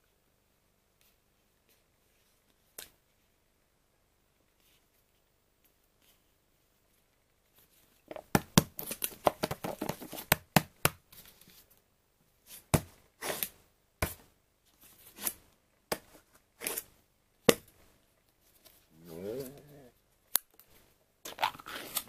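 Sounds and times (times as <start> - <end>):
plastic cups clicking and crinkling: 21.3 - 22.0.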